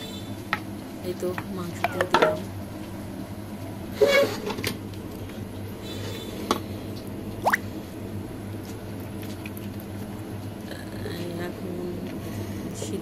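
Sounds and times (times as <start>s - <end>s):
wet squishing and dripping: 7.0s - 7.8s, 8.5s - 10.6s.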